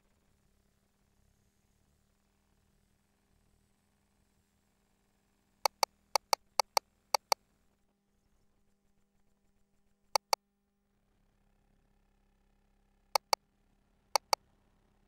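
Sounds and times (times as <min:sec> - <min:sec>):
control panel keys clicking: 0:05.7 - 0:07.4, 0:10.2 - 0:10.4, 0:13.2 - 0:13.4, 0:14.2 - 0:14.4.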